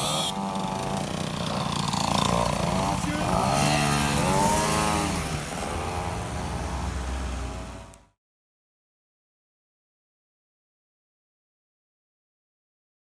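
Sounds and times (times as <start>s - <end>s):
mopeds riding past: 0.0s - 8.0s.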